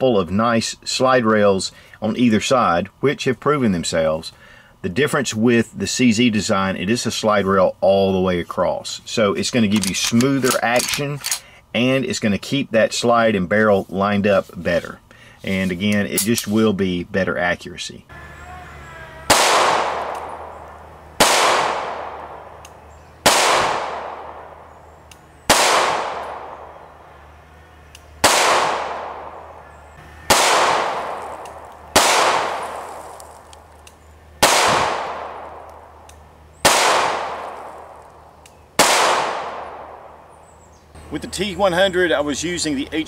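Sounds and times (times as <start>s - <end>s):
pistol shots ringing out: 19.2s - 27.4s, 28.2s - 33.2s, 34.4s - 38.1s, 38.8s - 40.3s.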